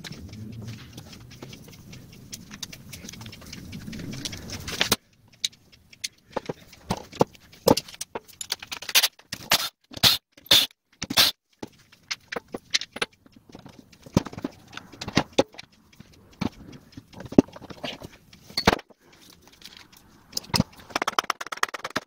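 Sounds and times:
parts scraping and rubbing: 0.0 - 22.0
metal parts clinking and knocking: 6.4 - 15.6, 17.2 - 22.0.

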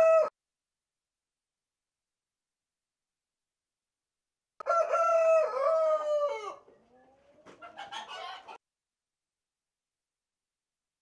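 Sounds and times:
rooster crowing: 0.0 - 0.3, 4.6 - 6.6.

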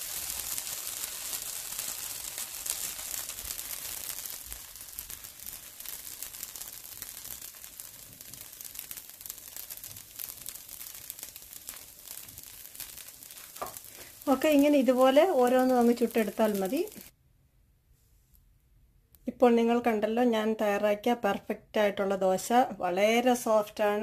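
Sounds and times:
batter sizzling on hot pan: 0.0 - 17.1.

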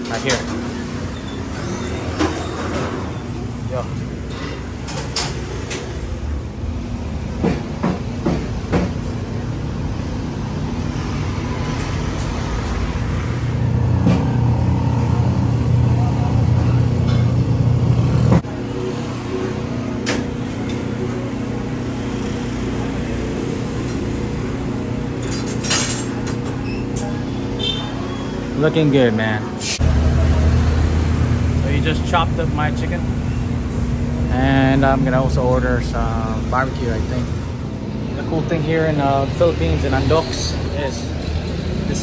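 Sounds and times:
vehicle engine rumble: 29.7 - 42.0.

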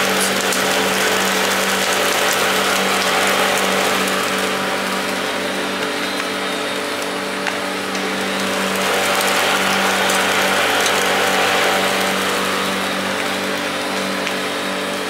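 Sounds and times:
machine hum: 0.0 - 15.0
meat sizzling on a grill: 0.0 - 15.0.

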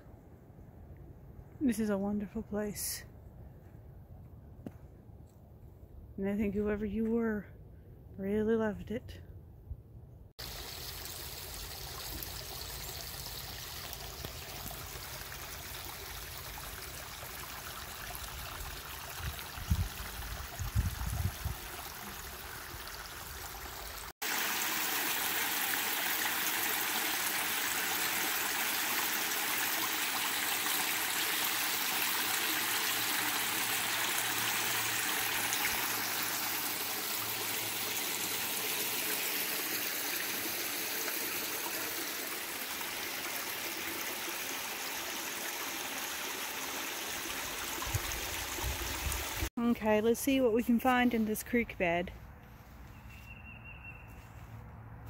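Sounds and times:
water rushing over ledge: 10.4 - 49.5
creek water trickling over rocks: 10.4 - 51.7.

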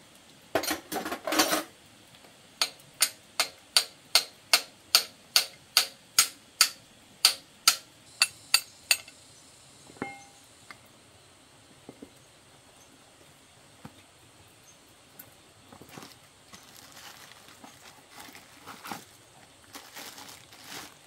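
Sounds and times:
metal tools clattering: 0.6 - 1.7
steel rod tapping on piston: 2.6 - 9.2.

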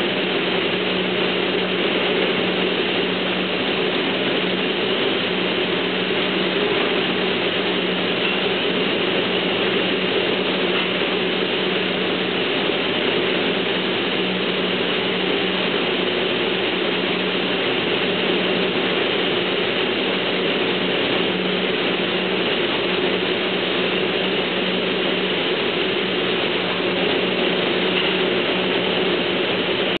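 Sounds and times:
constant low hum: 0.0 - 30.0
paint spraying line machinery: 0.0 - 30.0.

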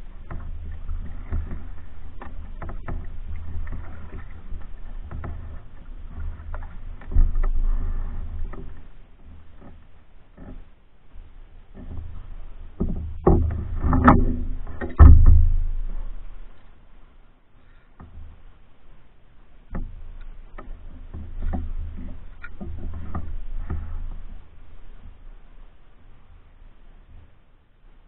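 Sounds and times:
paddle knocking canoe hull: 0.0 - 16.9, 17.6 - 28.0
water moving along hull: 0.0 - 28.0.

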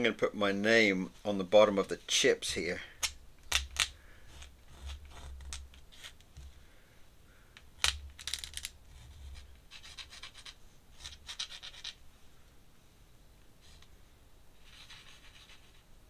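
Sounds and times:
pen scratching on paper: 4.3 - 6.1, 14.6 - 15.8.

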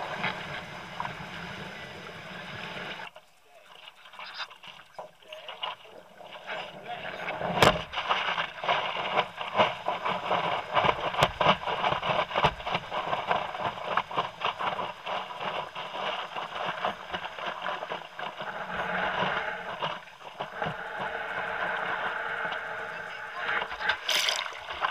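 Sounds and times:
surf water rushing and splashing: 0.0 - 24.9
water slaps and spray hits: 7.4 - 15.7, 23.7 - 24.9.

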